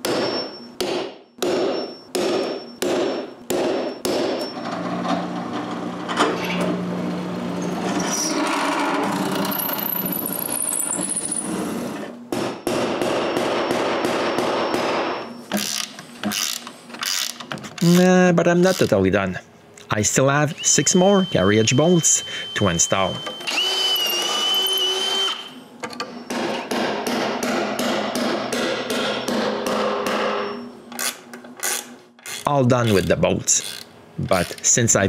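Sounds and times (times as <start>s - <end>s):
hammer striking metal: 0.0s - 4.5s, 12.3s - 15.3s, 26.3s - 30.6s
drill press drilling steel: 22.1s - 25.6s.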